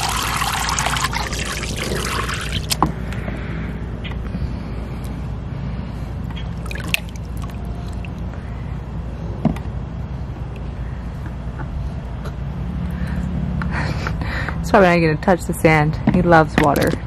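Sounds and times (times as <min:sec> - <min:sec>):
water dripping and splashing: 0:00.0 - 0:02.8, 0:06.6 - 0:08.3
steady low background noise: 0:00.0 - 0:17.0.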